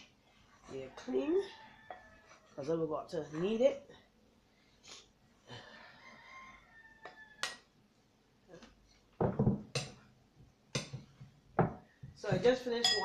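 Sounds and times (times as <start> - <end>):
glass bowl knocking on wooden shelf: 9.2 - 9.7, 11.6 - 13.0.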